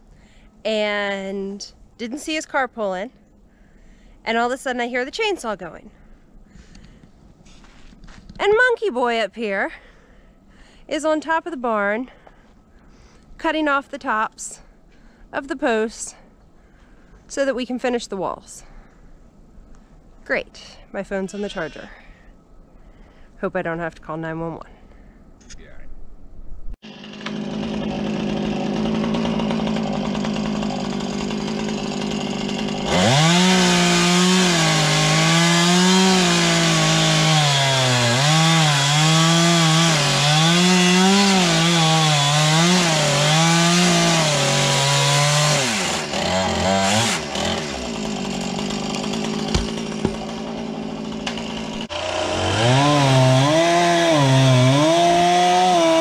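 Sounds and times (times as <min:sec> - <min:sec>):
chainsaw idling and cutting wood: 0:26.8 - 0:56.0.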